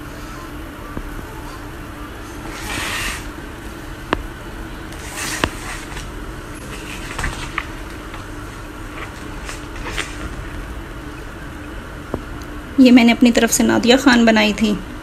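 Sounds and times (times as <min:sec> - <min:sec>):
steady low hum: 0:00.0 - 0:15.0
paper pages turning: 0:05.0 - 0:10.4.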